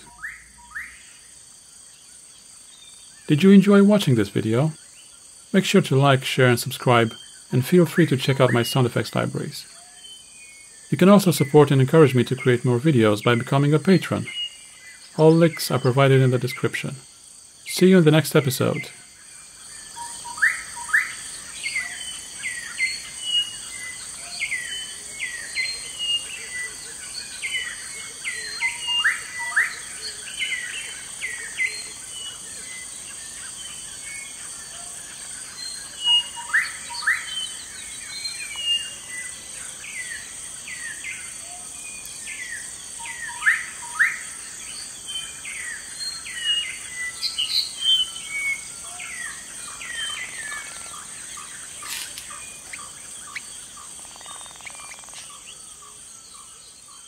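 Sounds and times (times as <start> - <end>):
birds whistling calls: 0.0 - 1.2, 19.9 - 34.9, 35.5 - 57.0
high-pitched insect drone: 18.1 - 57.0.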